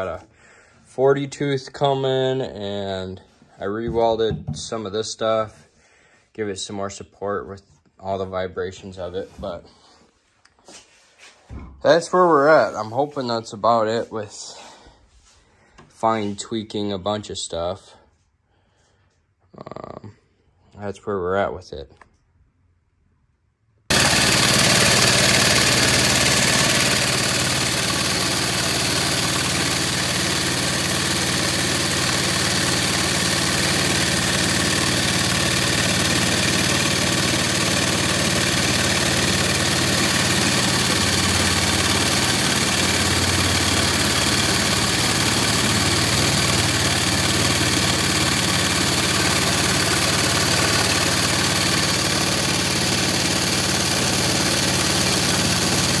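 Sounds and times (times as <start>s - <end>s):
single-cylinder engine running: 0.0s - 0.2s, 23.9s - 56.0s.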